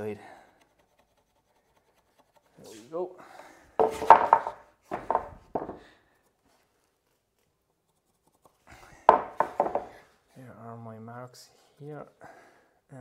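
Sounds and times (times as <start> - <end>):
wooden board knocking on jig: 3.8 - 5.8, 9.1 - 9.9.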